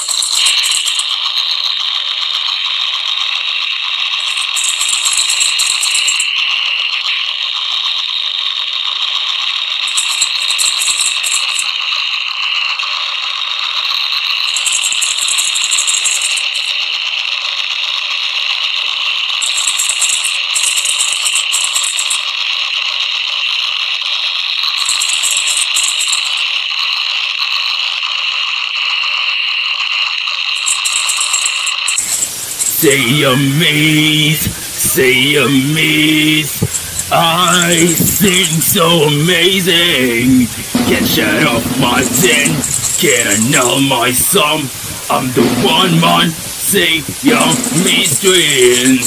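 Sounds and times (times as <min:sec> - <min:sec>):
shaker rattling: 0:00.0 - 0:02.6, 0:03.9 - 0:06.4, 0:09.8 - 0:12.0, 0:14.3 - 0:16.8, 0:19.3 - 0:22.4, 0:24.6 - 0:26.6, 0:30.5 - 0:33.1, 0:34.0 - 0:49.0.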